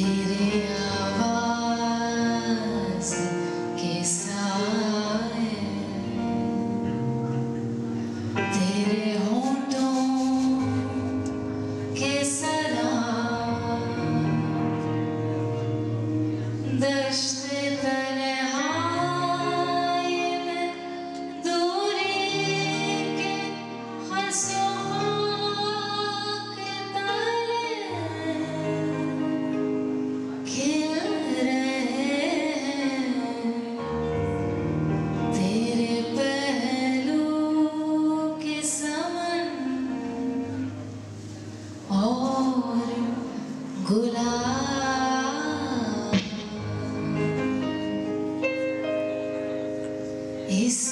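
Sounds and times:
instrumental accompaniment: 0.0s - 50.9s
person singing with wavering notes: 8.3s - 34.6s.

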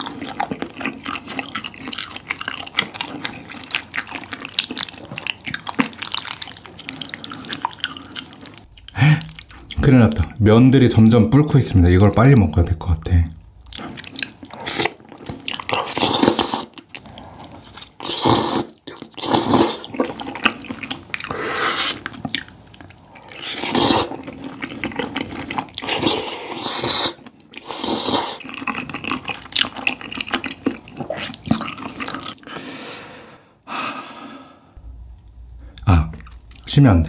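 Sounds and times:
loud wet noodle slurping: 13.8s - 22.2s, 23.1s - 32.7s.

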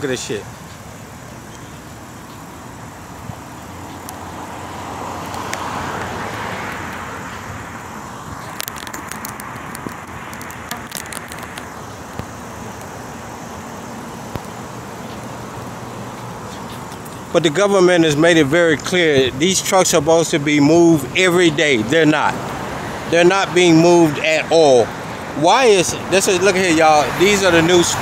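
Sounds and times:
car passing: 0.0s - 28.0s
small crackling clicks: 3.6s - 4.2s, 5.2s - 7.1s, 8.3s - 13.0s, 14.2s - 17.3s.

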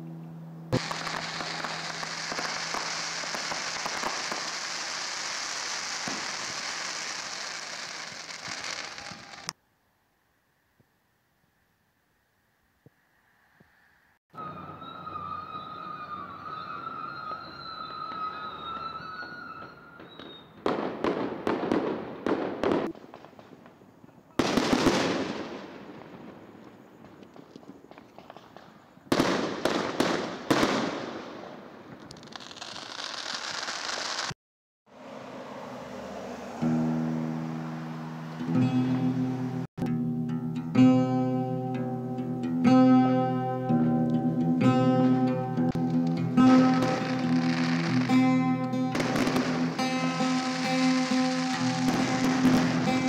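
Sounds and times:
fireworks crackling: 0.7s - 9.6s, 16.4s - 34.4s, 45.7s - 53.0s.

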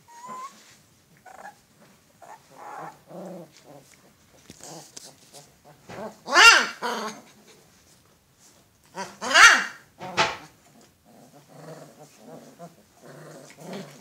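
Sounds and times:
puppies growling and whining: 0.0s - 7.5s, 10.0s - 14.0s
puppy yelp: 0.1s - 1.6s, 6.2s - 7.2s, 9.0s - 9.8s.

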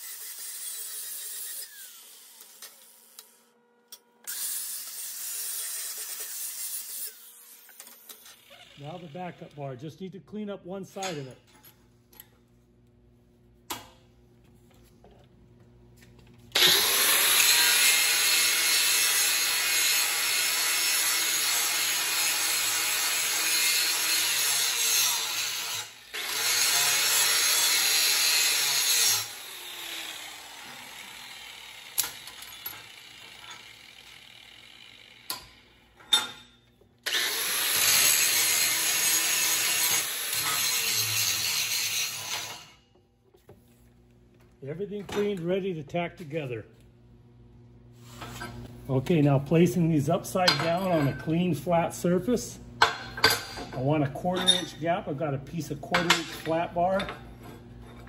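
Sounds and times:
angle grinder grinding metal: 0.0s - 3.4s, 4.2s - 9.7s, 16.5s - 36.2s, 37.0s - 42.8s.

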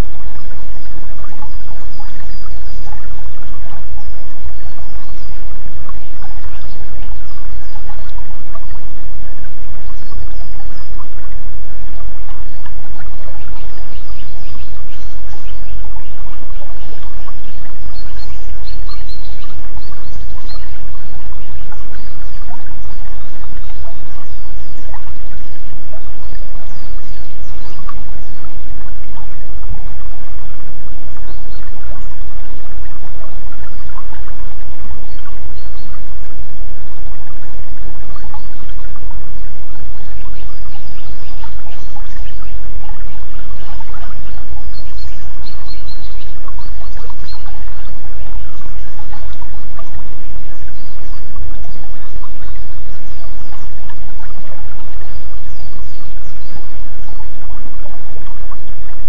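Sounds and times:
stream of water trickling: 0.0s - 59.0s
small birds chirping: 0.4s - 8.6s, 12.6s - 28.7s, 40.1s - 50.0s.

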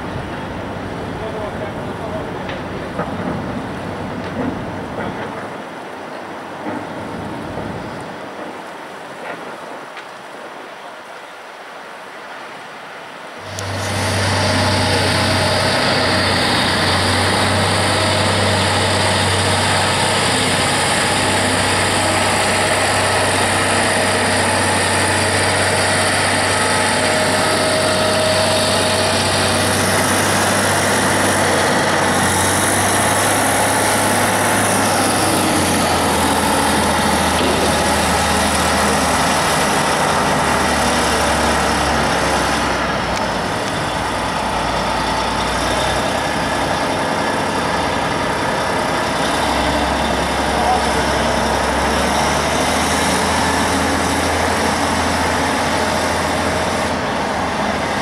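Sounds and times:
faint construction site noise: 0.0s - 58.0s
diesel engine droning: 13.4s - 58.0s.

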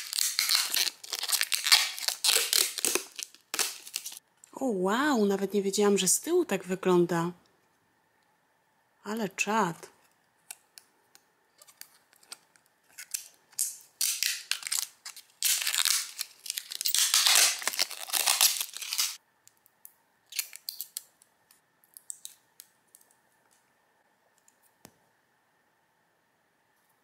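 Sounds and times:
plastic packaging crinkling: 0.0s - 4.2s, 11.6s - 19.2s, 20.3s - 21.2s.

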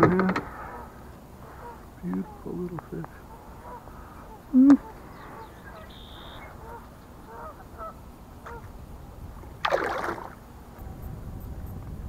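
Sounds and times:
faint waterfowl honking: 0.4s - 8.8s
fish splashing at surface: 9.6s - 10.4s.

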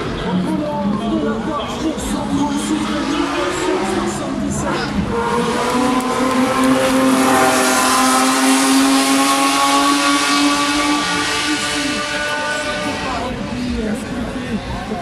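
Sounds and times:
race car engine passing: 2.0s - 14.4s.

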